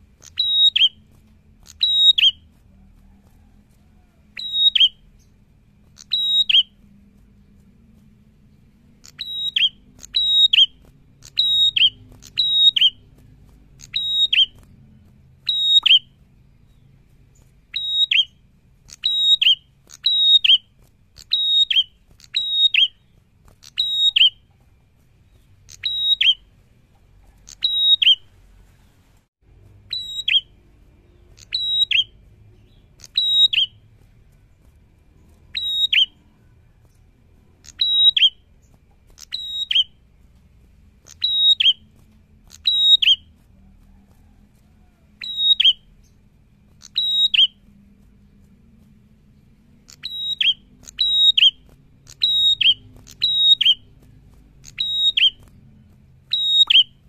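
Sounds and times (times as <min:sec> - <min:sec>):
bird call with downward whistle: 0:00.2 - 0:01.0, 0:01.7 - 0:02.4, 0:04.4 - 0:05.1, 0:06.0 - 0:06.8, 0:09.1 - 0:13.0, 0:13.8 - 0:14.6, 0:15.5 - 0:16.1, 0:17.7 - 0:20.7, 0:21.3 - 0:23.0, 0:23.7 - 0:24.4, 0:25.7 - 0:26.4, 0:27.5 - 0:28.2, 0:29.9 - 0:30.5, 0:31.4 - 0:33.8, 0:35.5 - 0:36.3, 0:37.7 - 0:38.4, 0:39.3 - 0:39.9, 0:41.1 - 0:41.8, 0:42.6 - 0:43.3, 0:45.2 - 0:45.9, 0:46.8 - 0:47.6, 0:49.9 - 0:53.9, 0:54.6 - 0:55.4, 0:56.3 - 0:57.0.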